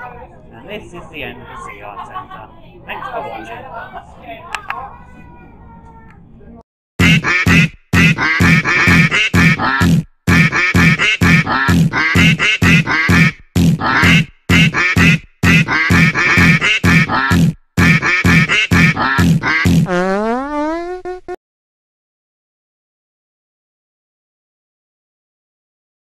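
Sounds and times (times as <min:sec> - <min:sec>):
nasal quacking notes: 0:07.0 - 0:21.4.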